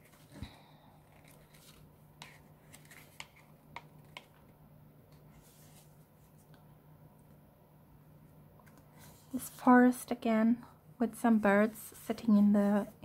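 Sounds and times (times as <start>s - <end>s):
low steady hum: 0.0s - 13.0s
paper pages rustling: 1.0s - 4.4s.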